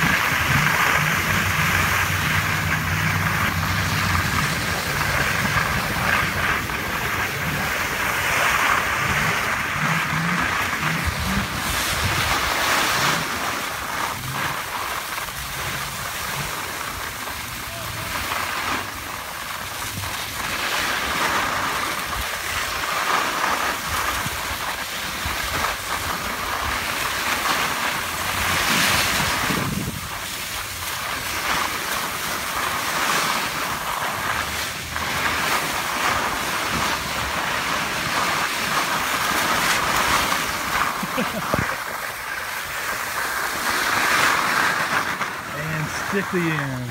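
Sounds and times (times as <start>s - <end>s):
wind buffeting microphone: 0.0s - 16.8s, 27.9s - 42.3s
skis scraping over snow: 0.0s - 46.9s.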